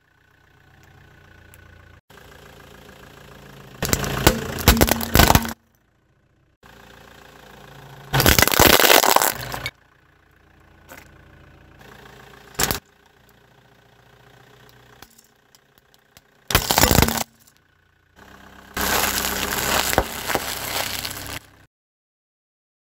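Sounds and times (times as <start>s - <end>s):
car engine idling: 0.0s - 21.7s
tyre crushing objects: 3.8s - 5.6s, 8.2s - 9.5s, 16.5s - 17.4s, 18.8s - 21.4s.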